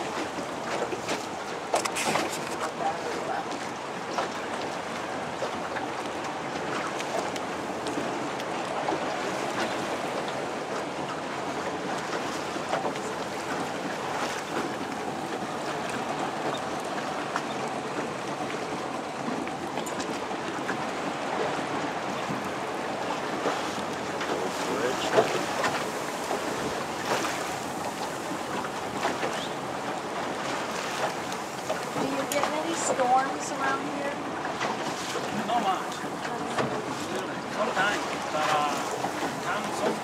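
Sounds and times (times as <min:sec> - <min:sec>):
outboard engine running: 0:00.0 - 0:40.0
water splashing against hull: 0:00.0 - 0:40.0.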